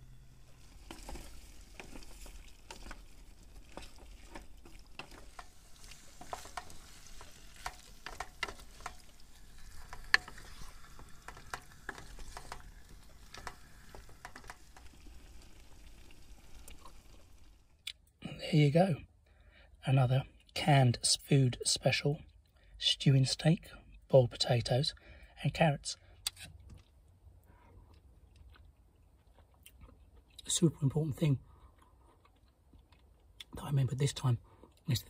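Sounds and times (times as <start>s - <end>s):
faint hiss of cooking: 0.0s - 17.8s.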